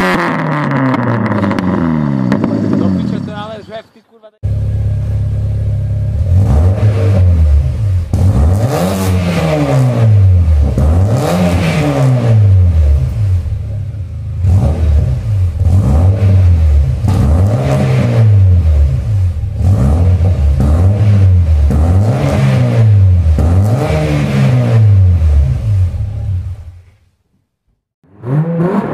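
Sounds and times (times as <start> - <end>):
car engine revving: 0.0 - 26.9, 28.0 - 28.9.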